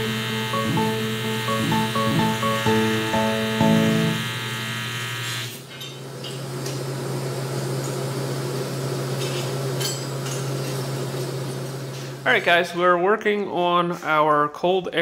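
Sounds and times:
music: 0.0s - 4.7s
welding arc buzzing: 0.0s - 5.7s.

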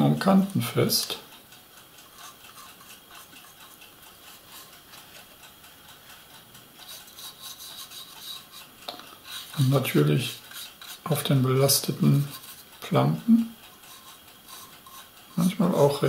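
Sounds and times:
paintbrush scratching on plastic: 2.2s - 4.7s, 6.8s - 12.7s, 13.8s - 15.9s.

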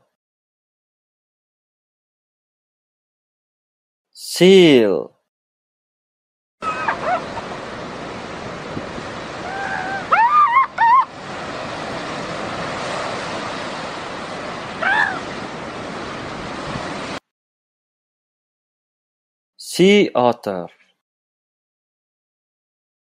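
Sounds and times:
surf and wind: 6.6s - 17.2s.

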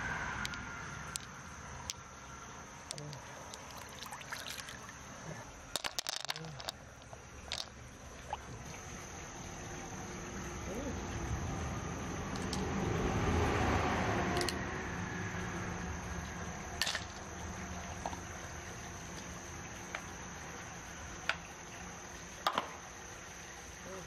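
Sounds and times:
high insect trill: 0.0s - 24.0s
soft wet rustling: 3.2s - 5.5s
shells clicking on ceramic dish: 5.8s - 7.7s.

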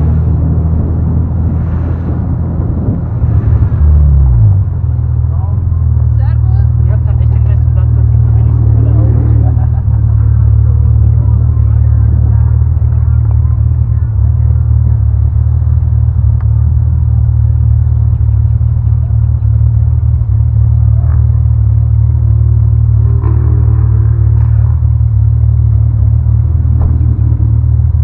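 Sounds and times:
car engine idling: 0.0s - 28.0s
faint wavering tones: 17.3s - 27.9s.

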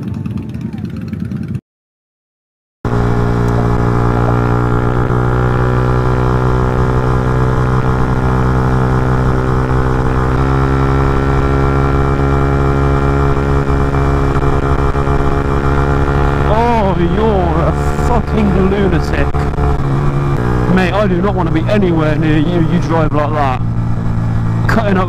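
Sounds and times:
motorcycle engine droning: 0.0s - 1.6s, 2.9s - 25.0s.

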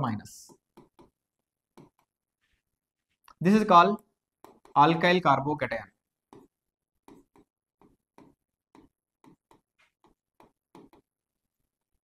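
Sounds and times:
pen scratching on whiteboard: 0.5s - 3.2s, 4.3s - 5.1s, 6.0s - 12.0s.

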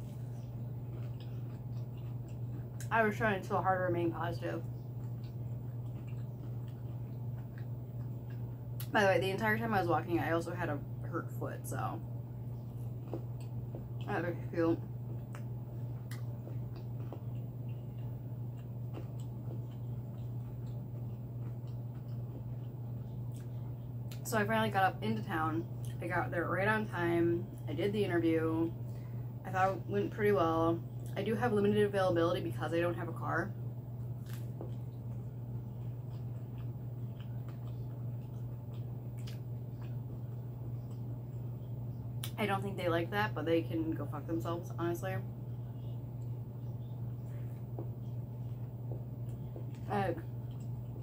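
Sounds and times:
close chewing of food: 0.0s - 42.7s, 45.2s - 51.0s
low hum: 0.0s - 51.0s.

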